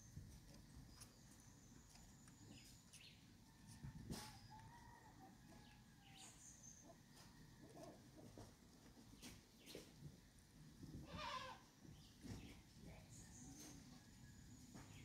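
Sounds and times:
small birds chirping: 0.0 - 10.2, 11.2 - 15.0
distant rooster crowing: 3.6 - 6.4.

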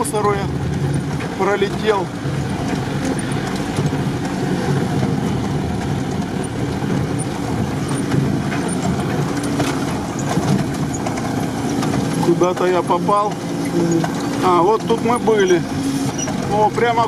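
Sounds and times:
car engine under load: 0.0 - 17.0.

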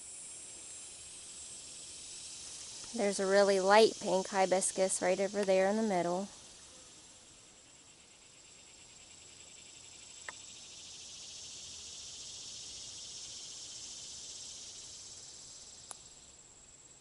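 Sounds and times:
insects chirring: 0.0 - 17.0
faint click: 15.8 - 16.0.

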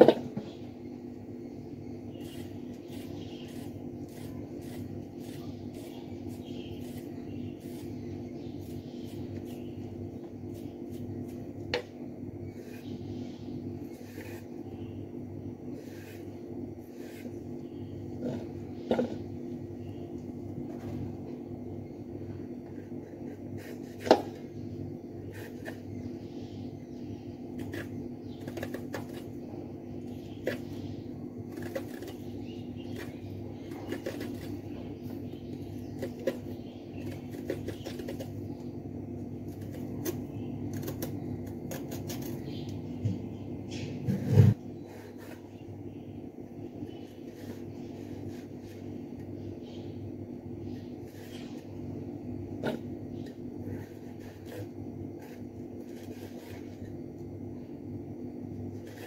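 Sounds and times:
steady low hum: 0.0 - 59.0
vegetable scraping on a blade: 2.1 - 11.5, 12.5 - 13.2, 13.8 - 15.0, 15.7 - 19.2, 22.7 - 24.4, 25.2 - 25.9, 27.6 - 29.4, 30.1 - 38.4, 39.5 - 42.5, 44.0 - 45.6, 52.6 - 57.0, 58.8 - 59.0.

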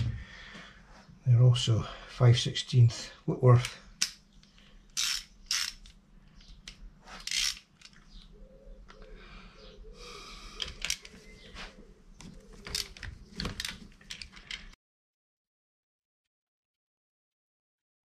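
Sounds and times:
short sharp ratchet clicks: 5.0 - 6.0, 7.2 - 8.0.

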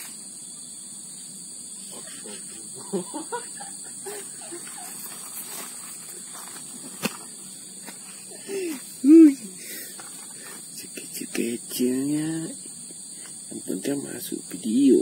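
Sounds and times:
high-pitched insect drone: 0.0 - 15.0
faint pitched calls: 1.2 - 6.4.

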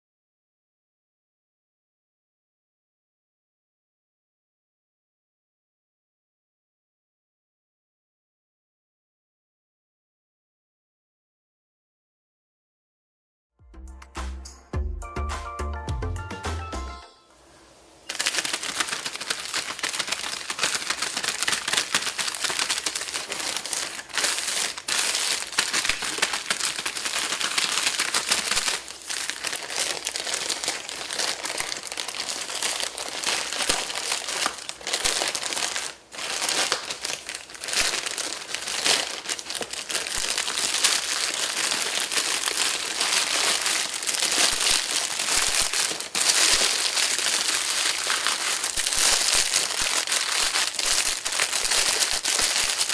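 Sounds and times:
plastic mailer bag crinkling: 18.0 - 52.9.

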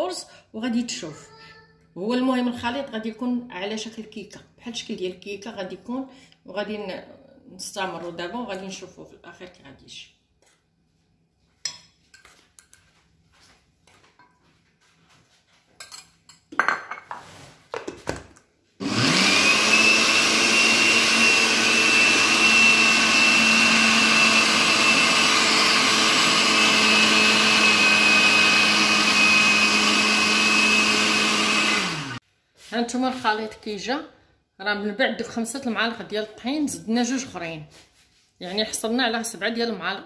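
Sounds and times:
blender running with high whine: 18.8 - 32.2.

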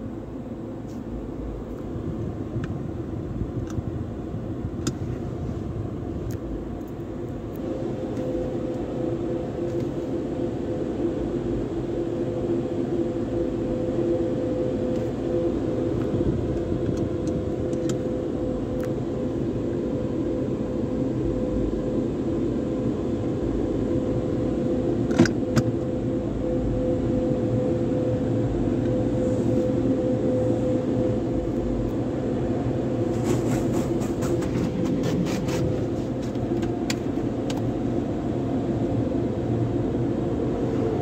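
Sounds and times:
car wash equipment humming: 22.4 - 41.0.

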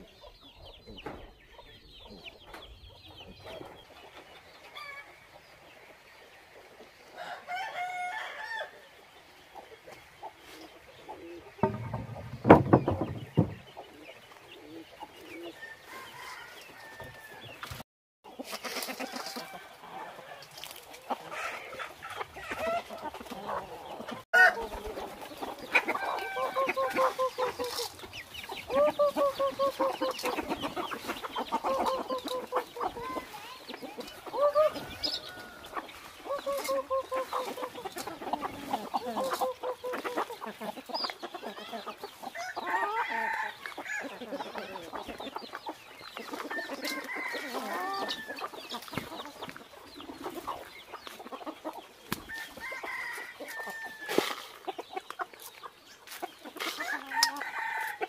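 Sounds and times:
chickens clucking: 0.0 - 58.0
roosters crowing: 7.1 - 9.0, 11.2 - 14.0, 14.6 - 17.8, 18.4 - 40.8, 41.4 - 45.4, 46.1 - 50.7, 51.6 - 54.7, 56.5 - 58.0.

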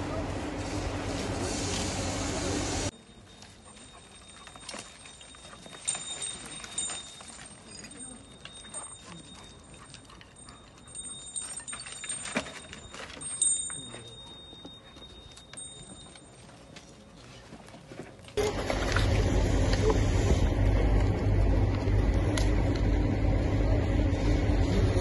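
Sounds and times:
debris clicking under dog paws: 3.3 - 19.1
loud steady rumbling: 18.4 - 25.0.

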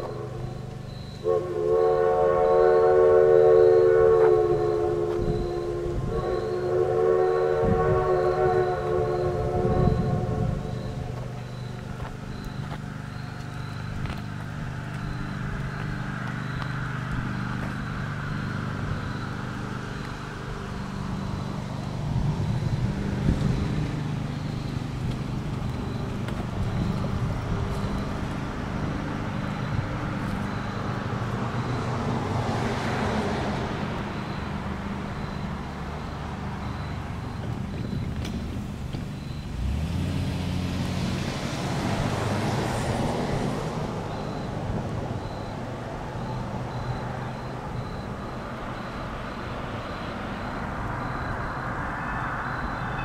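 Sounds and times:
steady engine hum: 0.0 - 53.0
vehicle passing by: 8.4 - 37.4, 38.6 - 48.0.

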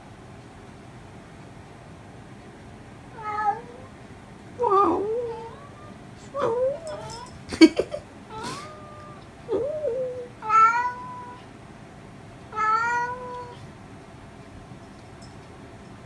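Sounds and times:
cat meowing: 3.1 - 3.9, 4.8 - 7.2, 8.3 - 11.4, 12.5 - 13.6.

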